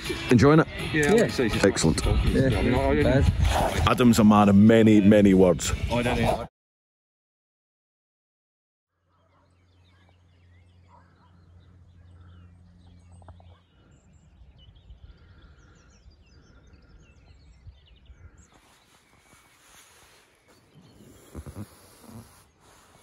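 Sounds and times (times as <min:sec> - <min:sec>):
birds chirping and singing: 0:09.0 - 0:23.0.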